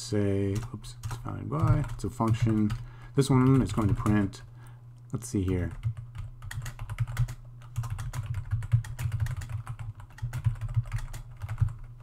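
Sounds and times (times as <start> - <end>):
typing on keyboard: 0.5 - 2.8, 3.4 - 4.2, 5.7 - 12.0.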